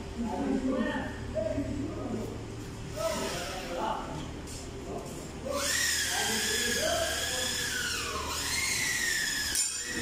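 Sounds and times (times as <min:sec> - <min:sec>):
high-pitched mechanical squealing whine: 0:05.4 - 0:10.0.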